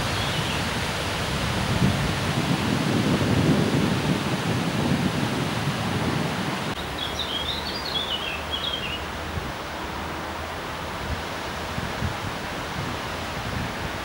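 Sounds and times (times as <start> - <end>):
wind buffeting microphone: 0.0 - 8.2, 10.9 - 14.0
leaves rustling: 0.0 - 14.0
songbird chirping: 6.7 - 9.1.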